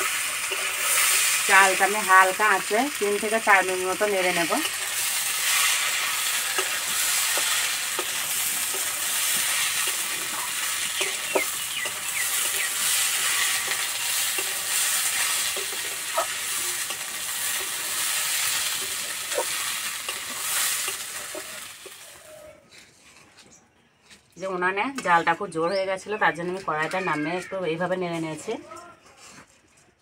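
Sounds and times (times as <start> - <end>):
metal spatula scraping a pan: 0.0 - 1.5, 4.4 - 22.0
rice sizzling in oil: 0.0 - 22.5.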